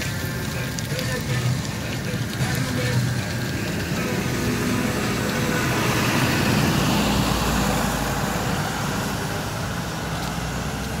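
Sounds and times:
vehicle passing by: 3.0 - 11.0.

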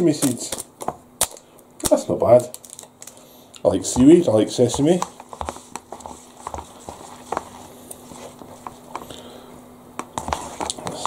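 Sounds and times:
faint steady hum: 0.0 - 11.0
packet tapping and shaking: 2.4 - 3.2, 4.0 - 7.5.

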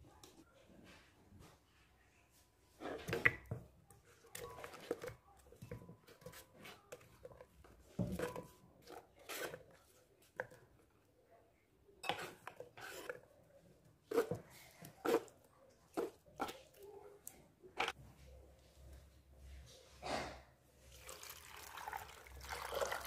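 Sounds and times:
knife scraping wooden board: 12.2 - 13.2.

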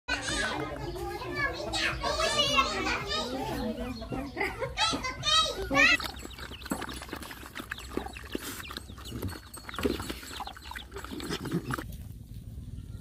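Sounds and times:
dogs slurping and chewing: 4.8 - 12.0.

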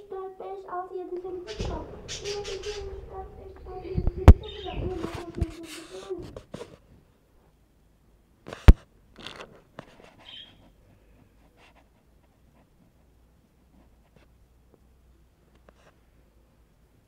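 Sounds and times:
rustling scrapes: 1.2 - 7.0.

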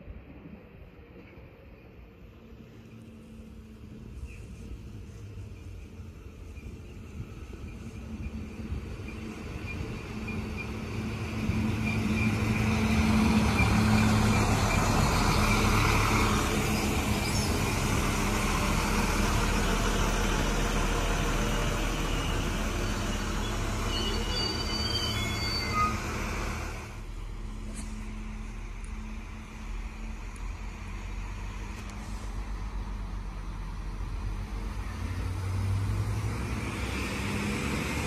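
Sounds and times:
diesel train engine hum: 0.0 - 38.0
train wheel and rail noise: 0.0 - 38.0
brake squeals: 4.0 - 26.9.

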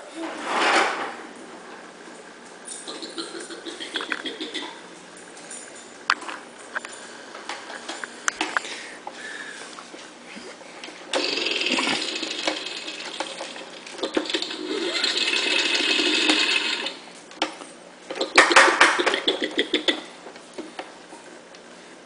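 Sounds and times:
toy electronic motor buzzing: 11.2 - 12.5, 14.5 - 17.0.

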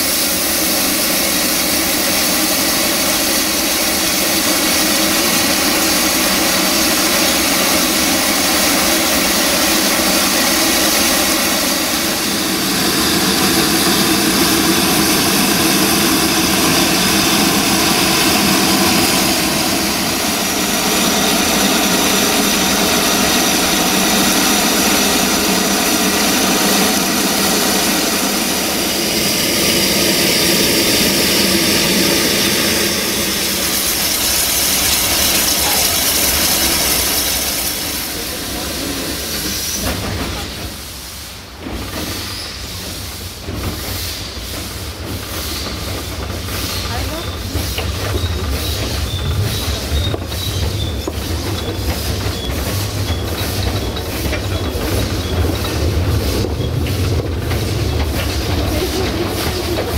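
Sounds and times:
steam train rushing noise: 0.0 - 59.9.

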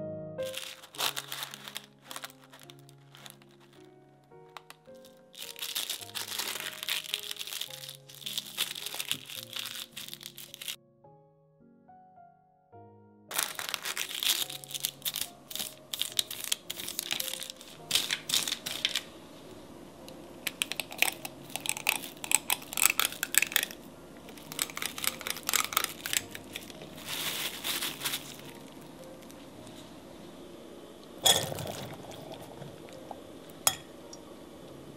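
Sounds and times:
packaging rustling and crinkling: 0.4 - 10.8, 13.3 - 19.2, 20.5 - 29.8.

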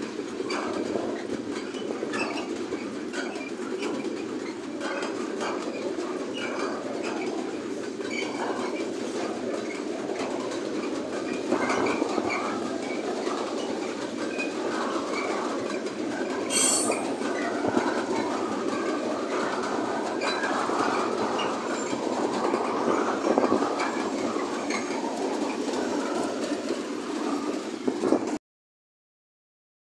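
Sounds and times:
diesel locomotive: 0.0 - 28.4
train wheels clattering over rails: 0.0 - 28.4
high-pitched wheel screech: 16.5 - 17.3.

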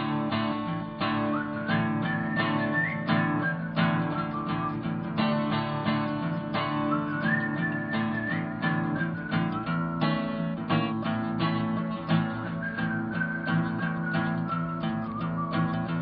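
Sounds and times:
acoustic guitar strumming: 0.0 - 16.0
whistled melody: 0.1 - 16.0.

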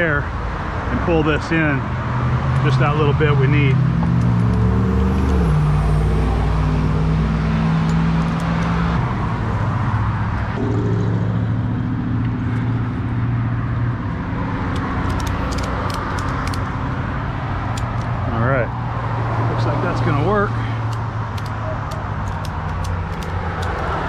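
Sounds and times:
engine humming: 2.6 - 24.0
ratchet strap clicking: 4.0 - 5.5, 7.8 - 9.0, 14.6 - 16.8, 17.7 - 18.2, 20.7 - 24.0.

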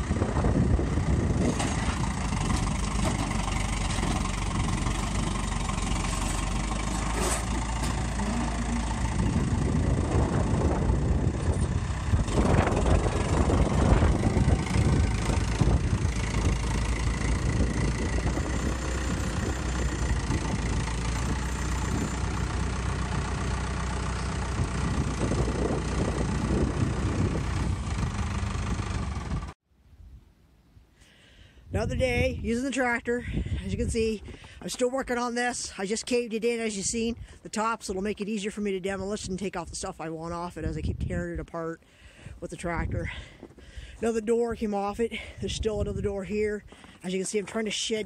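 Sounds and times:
tractor engine running: 0.0 - 29.6, 42.2 - 48.0.

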